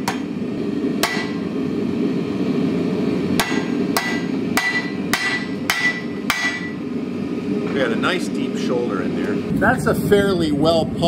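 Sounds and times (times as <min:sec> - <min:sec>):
hammer striking hot steel on anvil: 0:00.0 - 0:01.6, 0:03.2 - 0:06.9.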